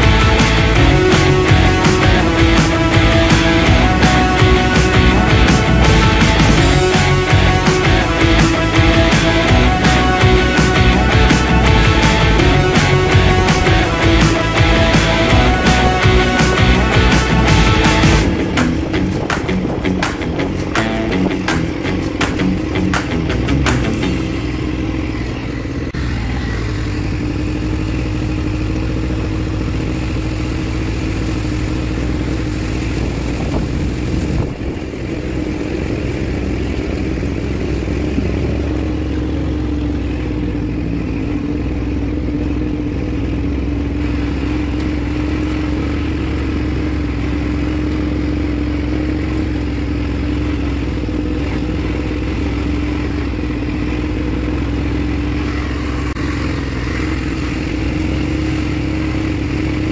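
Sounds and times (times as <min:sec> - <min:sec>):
quad bike engine running: 0:00.0 - 0:59.9.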